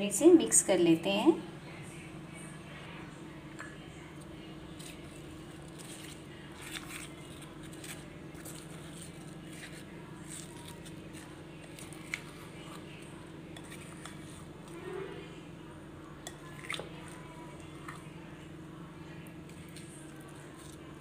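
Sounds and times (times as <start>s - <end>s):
steady low hum: 0.0s - 21.0s
spoon stirring in glass bowl: 4.8s - 14.8s.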